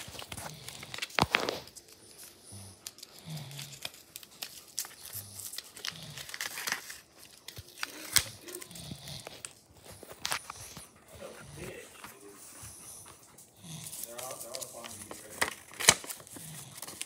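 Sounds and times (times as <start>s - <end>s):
tape seal tearing: 0.0s - 1.9s, 2.6s - 9.6s, 14.2s - 17.0s
paper bag crinkling: 0.0s - 12.3s, 13.6s - 17.0s.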